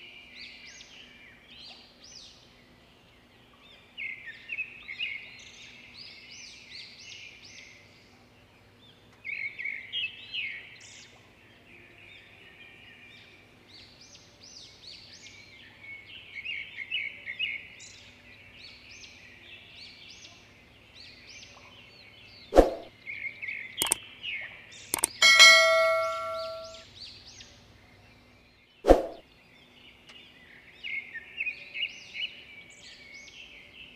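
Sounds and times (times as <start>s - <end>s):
sharp knock: 22.6s - 22.9s, 25.0s - 26.8s
birds chirping: 23.8s - 24.0s, 25.0s - 26.8s.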